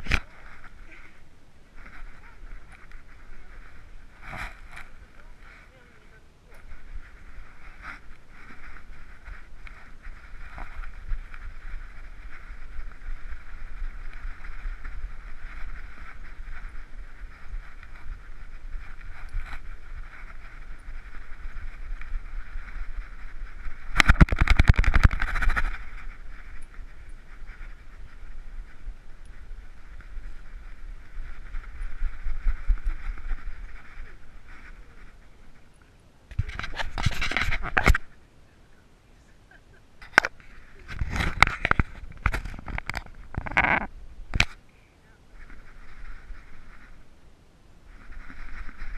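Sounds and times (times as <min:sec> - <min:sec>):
camera rubbing and jostling: 0:00.0 - 0:38.2, 0:39.4 - 0:44.6, 0:45.3 - 0:47.2, 0:47.8 - 0:48.9
muffled rumble and rustling: 0:00.0 - 0:48.9.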